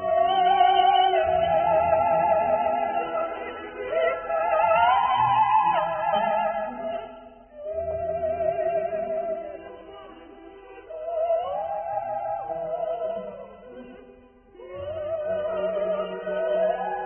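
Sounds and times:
operatic voice singing: 0:14.5 - 0:17.0.

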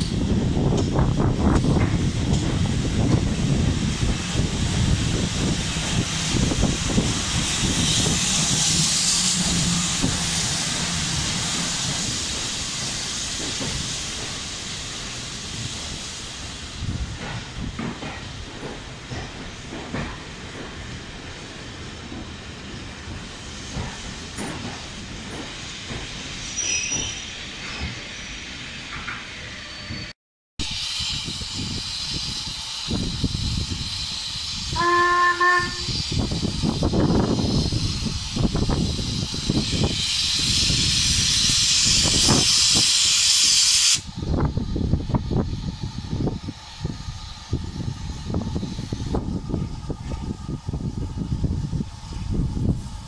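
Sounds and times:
train wheels thumping over rail joints: 0:00.0 - 0:28.1
steam locomotive hissing steam: 0:00.0 - 0:53.0
high wheel squeal: 0:26.4 - 0:28.4, 0:29.4 - 0:30.1.

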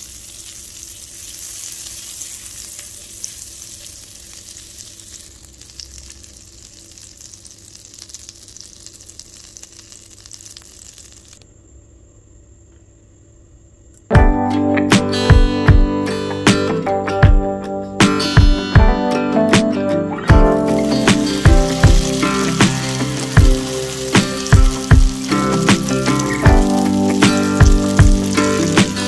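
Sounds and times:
butter sizzling in a frying pan: 0:00.0 - 0:11.4, 0:20.4 - 0:29.0
acoustic guitar music: 0:14.1 - 0:29.0.

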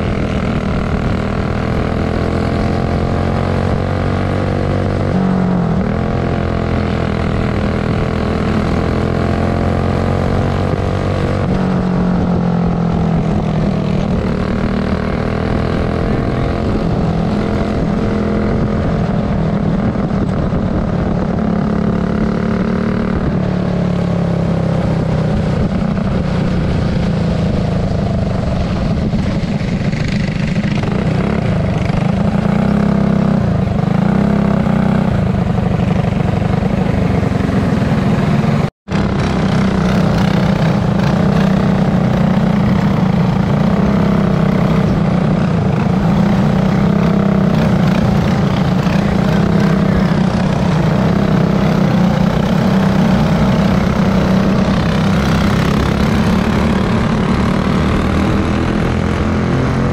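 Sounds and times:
kart engine droning: 0:00.0 - 0:59.9.

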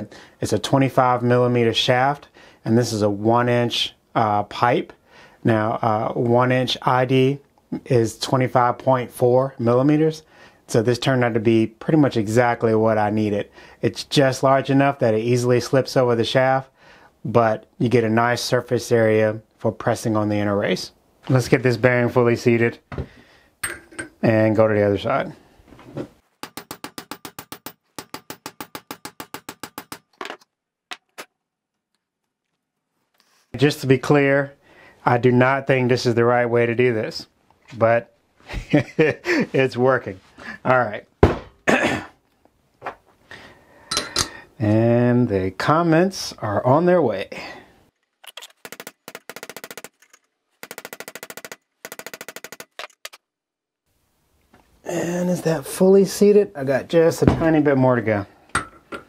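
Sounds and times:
hammer tapping metal pipe: 0:23.6 - 0:24.2, 0:43.9 - 0:44.4, 0:58.5 - 0:59.0.

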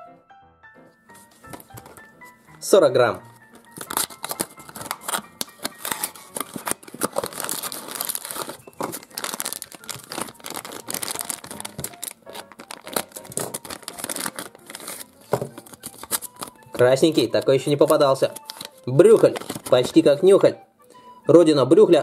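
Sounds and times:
plastic packet crinkling: 0:03.4 - 0:20.2
cardboard box opening: 0:03.8 - 0:17.2, 0:18.4 - 0:19.8.

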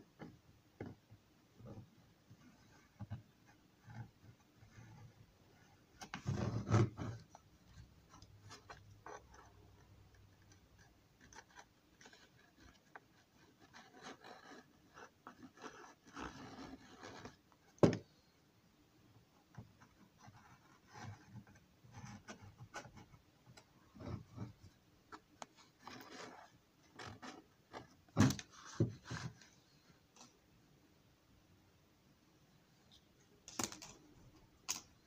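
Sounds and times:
light rubbing and scraping: 0:01.6 - 0:18.3, 0:19.4 - 0:30.4.

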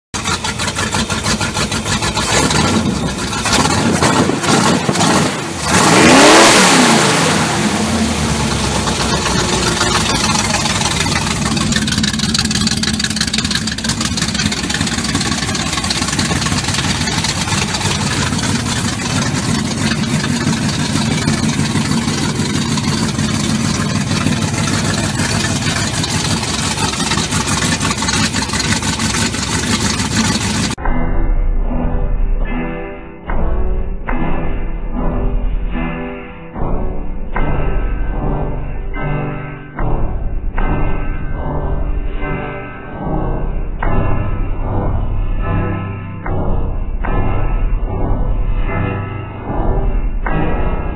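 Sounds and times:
car engine revving and idling: 0:00.2 - 0:30.8.

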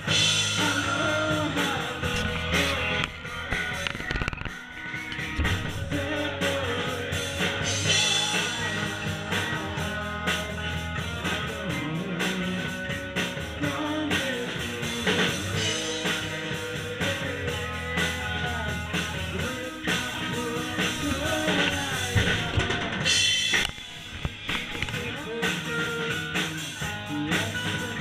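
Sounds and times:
bass drum and snare: 0:00.0 - 0:28.0
live rock band playing: 0:00.0 - 0:28.0.

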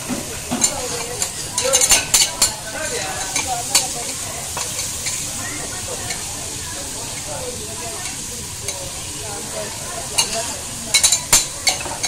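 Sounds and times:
scallops sizzling in oil: 0:00.0 - 0:12.0
metal spatulas clinking on griddle: 0:00.5 - 0:05.3, 0:10.1 - 0:12.0.

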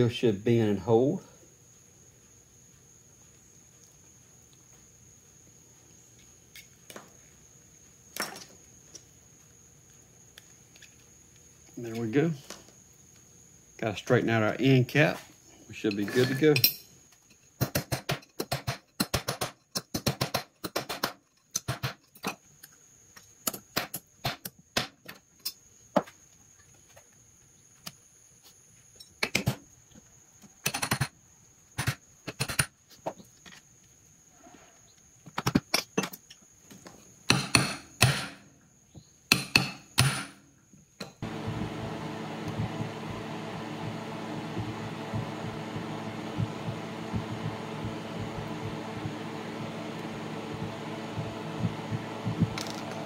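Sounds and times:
motor humming: 0:41.2 - 0:53.0.

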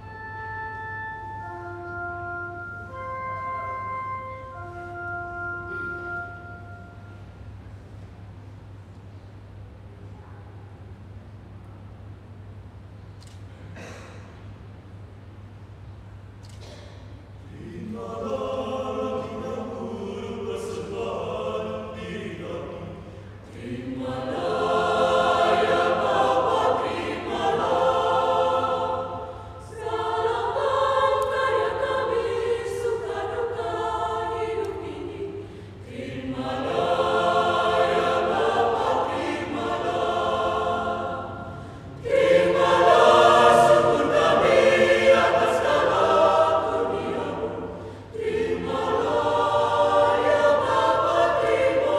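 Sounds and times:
mixed choir singing: 0:17.4 - 0:51.9.

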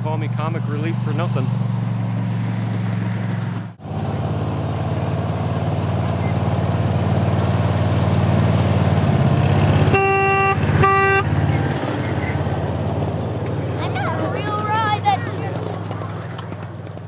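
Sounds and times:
miniature locomotive engine running: 0:03.8 - 0:10.8, 0:13.3 - 0:17.0.

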